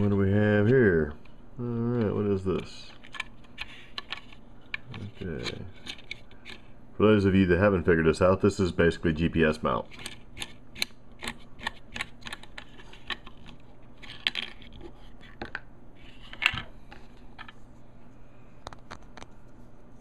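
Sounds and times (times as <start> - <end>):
plastic clicks and clatter: 9.9 - 15.6.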